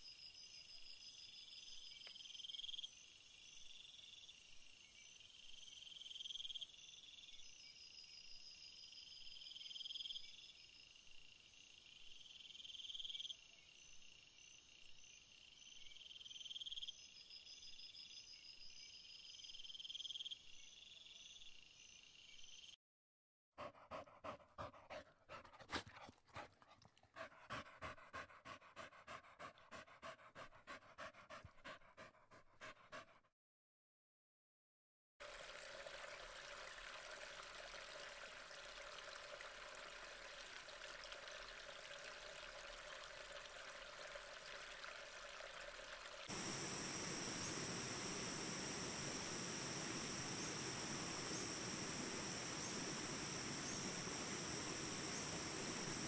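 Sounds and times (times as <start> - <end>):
animal panting rapidly: 23.6 - 33.3.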